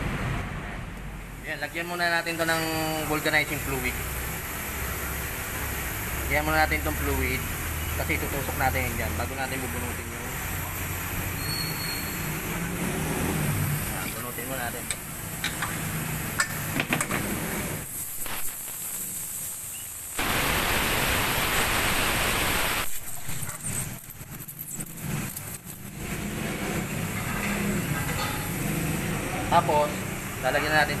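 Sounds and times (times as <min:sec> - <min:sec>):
air hissing out of tyre: 0:10.2 - 0:23.8.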